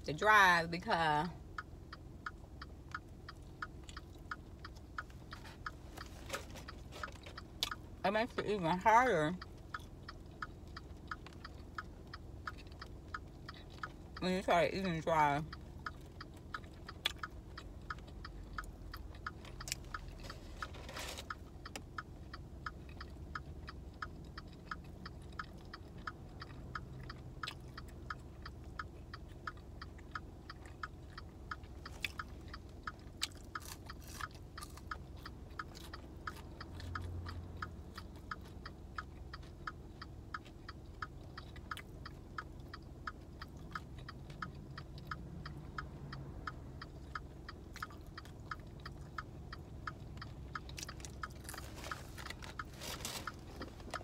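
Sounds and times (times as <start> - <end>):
person chewing fries: 2.4 - 8.4, 9.4 - 14.2, 15.6 - 54.0
fast even ticking: 21.2 - 54.0.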